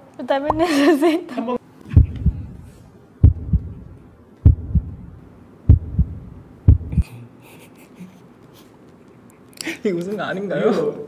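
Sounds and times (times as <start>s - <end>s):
heartbeat thumps: 1.9s - 7.0s.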